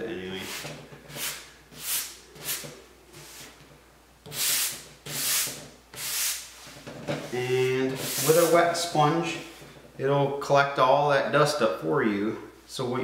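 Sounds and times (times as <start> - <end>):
sanding sponge scratching wood: 4.3 - 6.5, 7.5 - 8.8.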